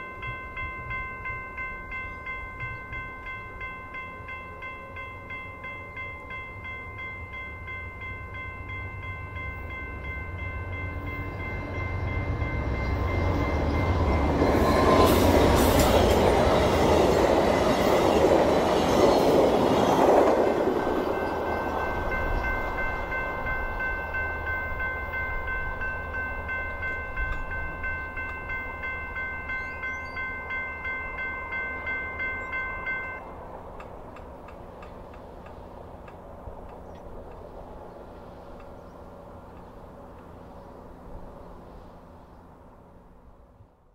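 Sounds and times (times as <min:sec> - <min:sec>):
crossing bell ringing: 0:00.0 - 0:33.4
train rumble: 0:00.0 - 0:43.9.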